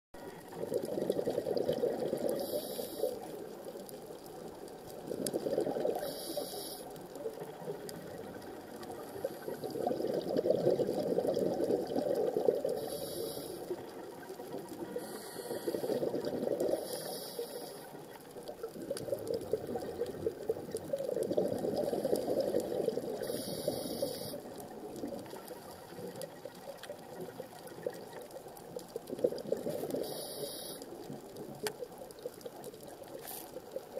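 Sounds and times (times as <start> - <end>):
exhaled bubbles rushing: 0.5 - 2.6, 4.9 - 6.1, 7.5 - 12.8, 13.7 - 17.0, 18.4 - 23.8, 24.5 - 30.2
regulator inhale hiss: 2.2 - 3.4, 5.9 - 7.1, 12.6 - 13.9, 14.8 - 18.0, 23.2 - 24.6, 29.8 - 31.0.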